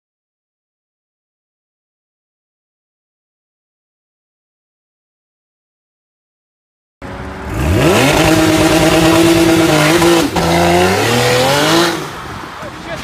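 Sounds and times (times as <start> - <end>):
car engine revving hard: 7.4 - 12.2.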